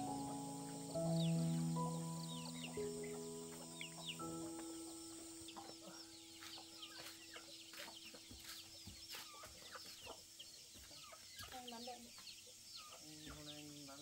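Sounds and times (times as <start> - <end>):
background music: 0.0 - 8.9
chickens clucking: 0.0 - 14.0
chicks peeping: 0.0 - 14.0.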